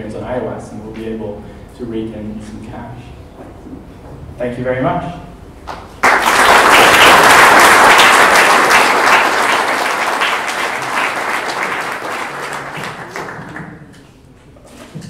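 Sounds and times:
audience applauding: 5.7 - 14.1.

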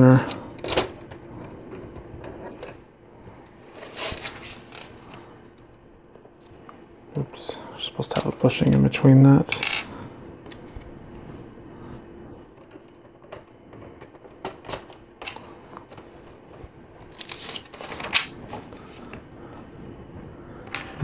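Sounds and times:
plastic parts clicking and rattling: 0.1 - 2.8, 12.5 - 19.2.

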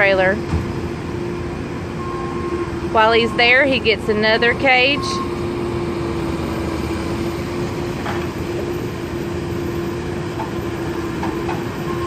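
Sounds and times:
constant machinery hum: 0.0 - 12.0
low engine rumble: 0.0 - 12.0.

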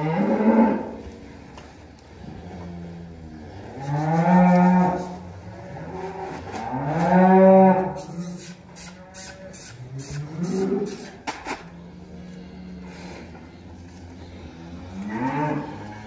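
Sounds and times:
cattle mooing: 0.0 - 1.4, 2.1 - 16.0.

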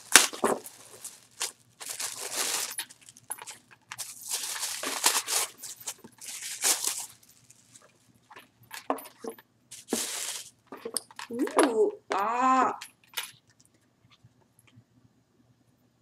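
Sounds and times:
plastic packaging crinkling: 0.0 - 11.5.

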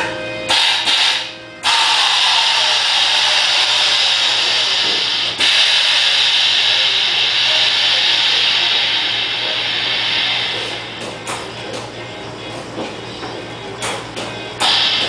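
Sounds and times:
compressed air hissing: 0.5 - 11.5, 14.6 - 15.0.

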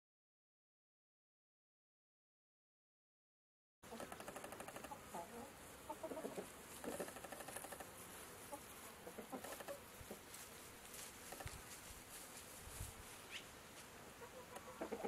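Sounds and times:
chickens clucking: 3.9 - 7.8, 8.4 - 10.4, 14.1 - 15.0.

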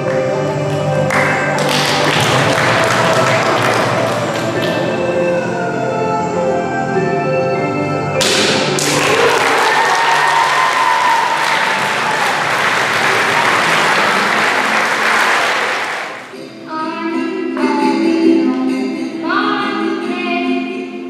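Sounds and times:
music with singing voice: 0.0 - 8.8, 16.3 - 21.0
audience applauding: 1.0 - 5.0, 8.3 - 16.4.

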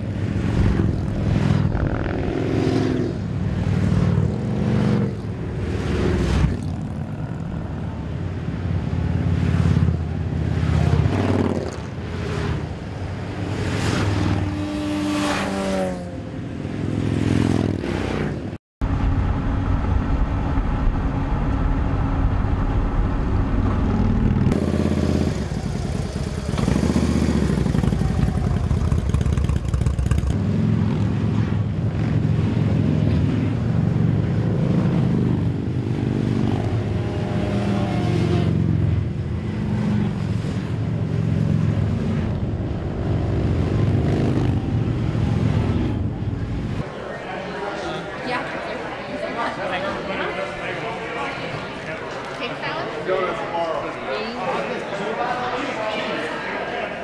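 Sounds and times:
motorcycles passing by: 0.0 - 18.6, 23.8 - 51.7.

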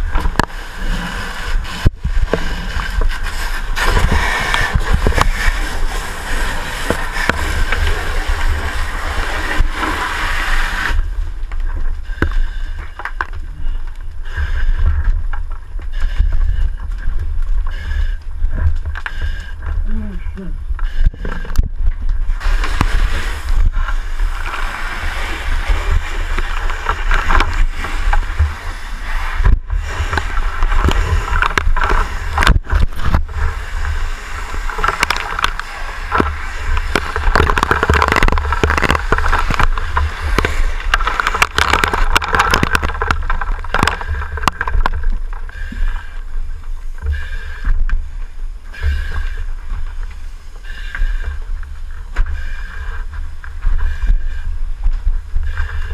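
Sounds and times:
rushing hiss: 2.4 - 11.1, 22.3 - 32.4.

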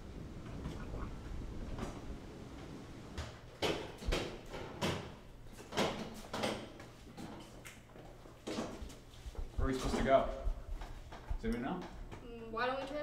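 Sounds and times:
footsteps on hard floor: 5.6 - 12.3.

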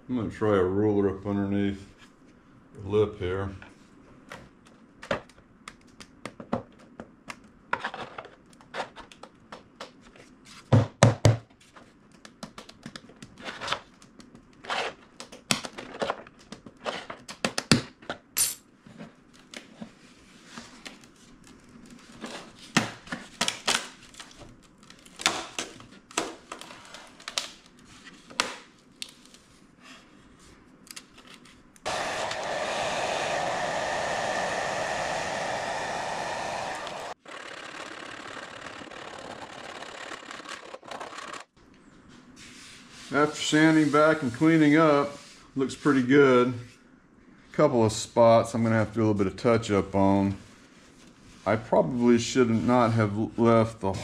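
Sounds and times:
hot-air blower blowing: 31.9 - 37.2.

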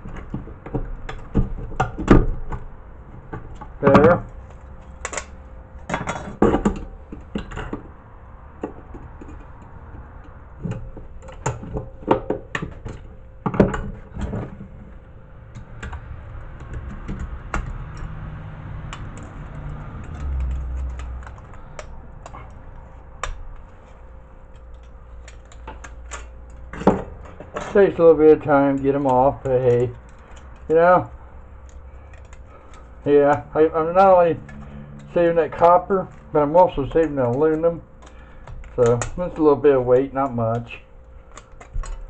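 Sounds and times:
pliers clicking on metal fins: 18.8 - 22.6, 24.5 - 42.0.

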